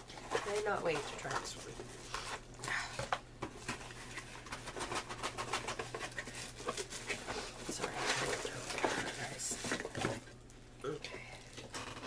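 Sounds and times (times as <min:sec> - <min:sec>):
cardboard box rustling: 0:00.0 - 0:02.4.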